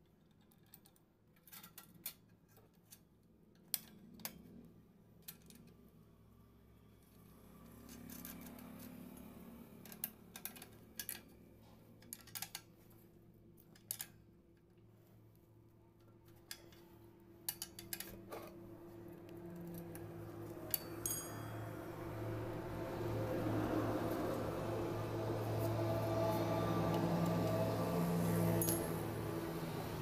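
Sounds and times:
steady low hum: 15.8 - 30.0
metallic clicks and taps: 17.5 - 18.5
high metallic ring: 20.6 - 22.3, 28.0 - 29.4.

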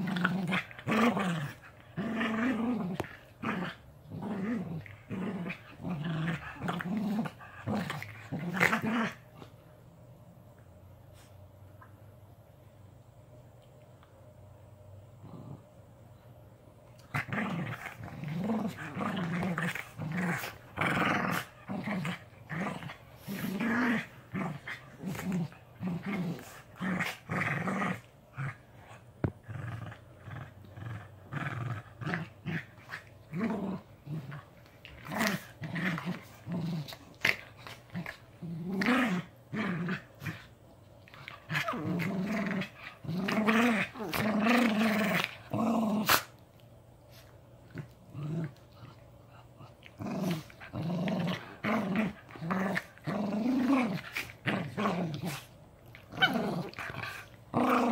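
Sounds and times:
puppies growling: 47.7 - 57.9.

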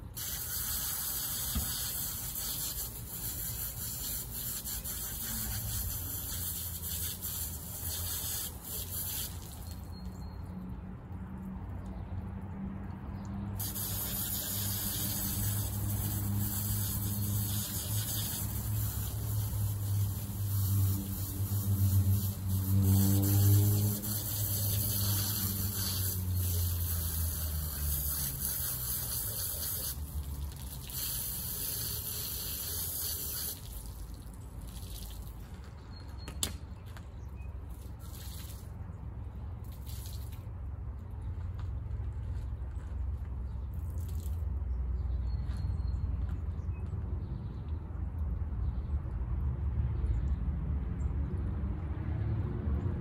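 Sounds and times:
water spraying onto car: 0.0 - 9.9, 13.6 - 35.4.

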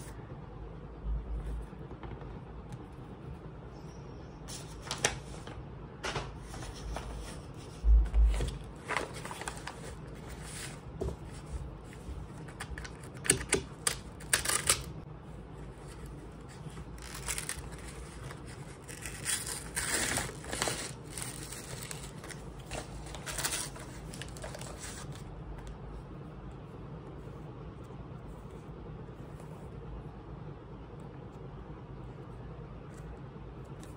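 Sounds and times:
paper rustling and tearing: 4.5 - 5.6, 8.2 - 14.9, 15.8 - 25.2.

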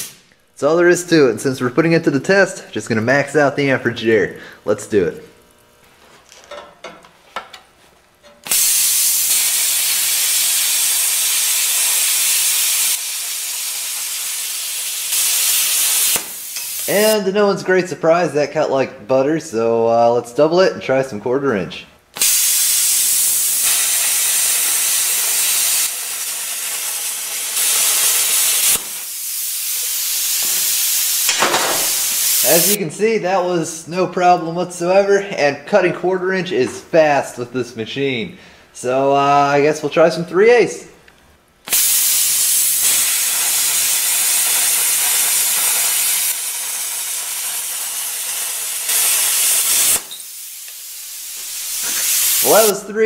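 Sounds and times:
plasma torch hissing: 0.0 - 0.3, 8.4 - 17.2, 22.2 - 32.8, 41.7 - 52.8
torch click: 8.2 - 12.9, 15.0 - 16.9, 22.2 - 29.1, 41.7 - 52.5.

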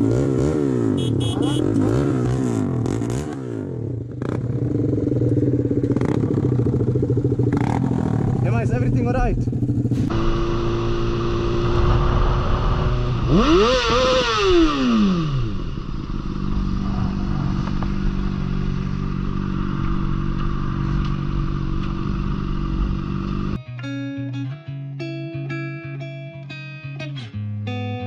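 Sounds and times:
motorcycle engine revving: 0.0 - 23.6
wind noise on microphone: 10.0 - 23.5
guitar music: 22.8 - 28.0.

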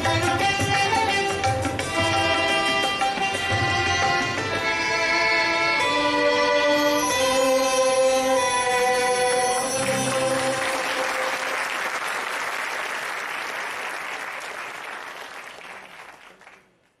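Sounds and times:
violin-led ensemble playing: 0.0 - 11.4
audience applause: 9.7 - 16.9.

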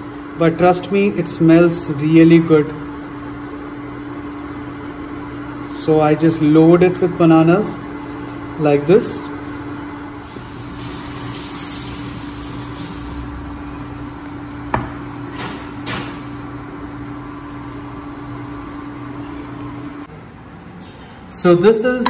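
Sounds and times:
induction hob humming: 0.0 - 22.0.

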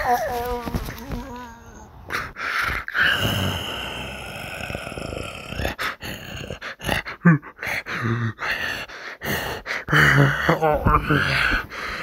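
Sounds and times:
creature's rasping growling roar: 2.8 - 8.9.

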